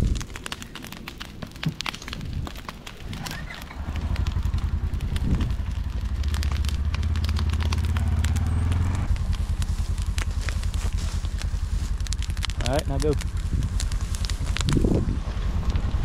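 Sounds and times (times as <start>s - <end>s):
grass burning with crackling pops: 0.0s - 16.0s
low engine rumble: 3.0s - 16.0s.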